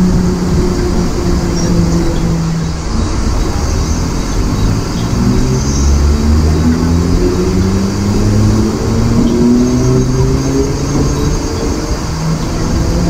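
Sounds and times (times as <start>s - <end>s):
electric train rumbling: 0.0s - 13.0s.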